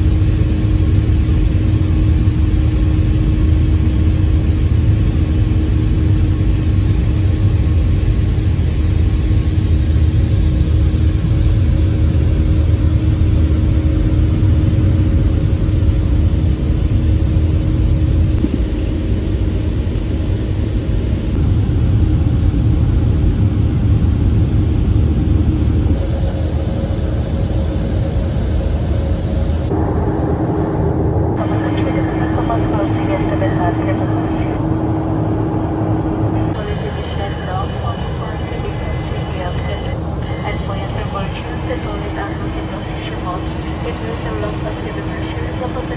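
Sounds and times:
jet engines droning: 0.0s - 45.9s
low rumble: 0.0s - 45.9s
faint steady hum: 23.7s - 45.9s
rushing air: 29.7s - 31.7s.

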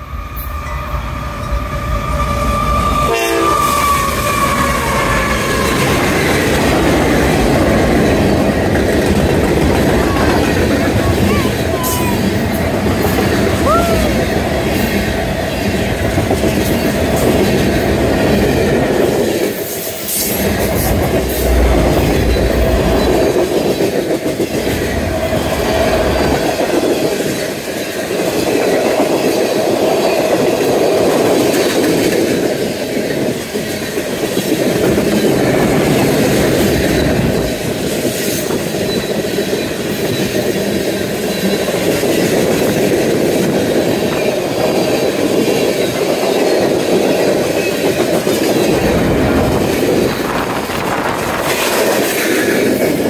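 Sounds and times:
steel wheels on rails: 0.0s - 53.0s
wheels clacking over rail joints: 3.7s - 13.6s.

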